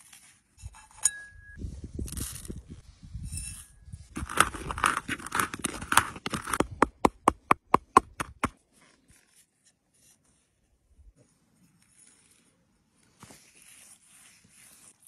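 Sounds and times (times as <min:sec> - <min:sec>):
pestle knocking in wooden cup: 0:05.7 - 0:08.5.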